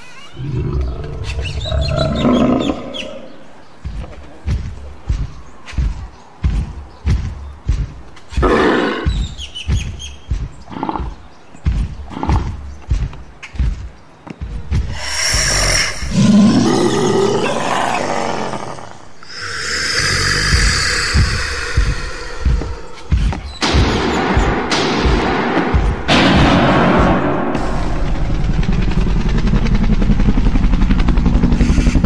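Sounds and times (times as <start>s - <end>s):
monster roaring: 0.4s - 3.3s, 14.9s - 23.1s
heavy stomping thuds: 3.8s - 16.7s, 19.3s - 27.4s.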